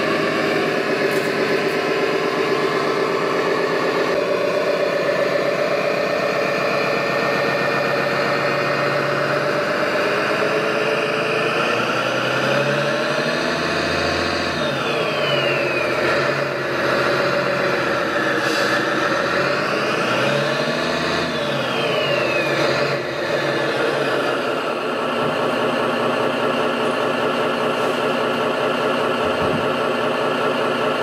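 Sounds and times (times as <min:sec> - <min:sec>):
toy truck engine running: 0:00.0 - 0:31.0
short falling whine: 0:13.6 - 0:20.1.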